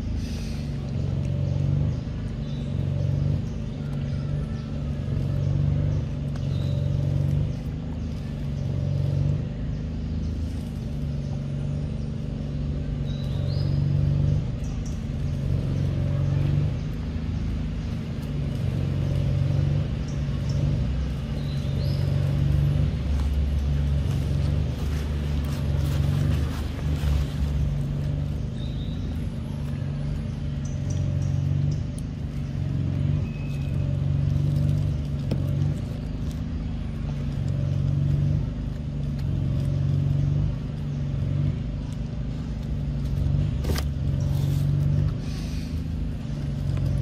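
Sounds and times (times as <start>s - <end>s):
low engine-like rumble: 0.0s - 47.0s
rising bird chirp: 25.6s - 35.0s.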